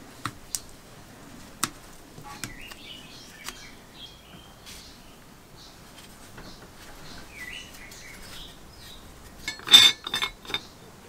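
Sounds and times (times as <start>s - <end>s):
small birds chirping: 0.1s - 11.0s.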